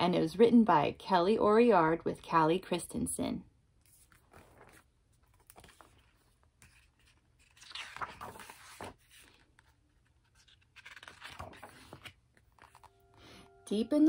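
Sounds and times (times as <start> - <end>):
book pages turning: 3.8 - 13.2.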